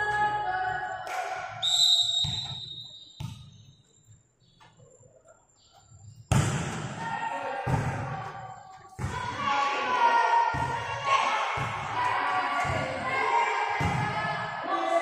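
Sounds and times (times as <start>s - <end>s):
referee's whistle: 1.6s - 3.6s
volleyball thumps: 2.1s - 3.5s, 6.3s - 8.3s, 13.8s - 14.3s.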